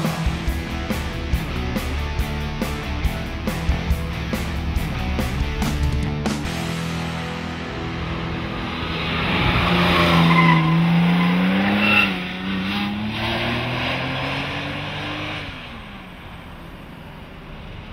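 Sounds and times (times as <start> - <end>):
sports car engine passing: 6.9 - 17.9
tyre squeals: 10.0 - 12.2.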